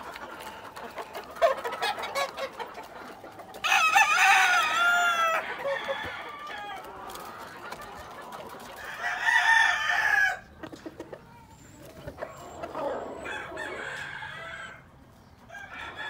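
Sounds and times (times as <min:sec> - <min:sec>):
rooster crowing: 0:03.6 - 0:06.9, 0:08.8 - 0:10.4, 0:12.8 - 0:14.8, 0:15.5 - 0:16.0.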